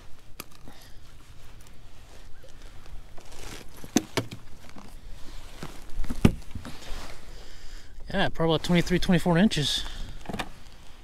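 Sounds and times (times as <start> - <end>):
rustling: 0.0 - 7.6.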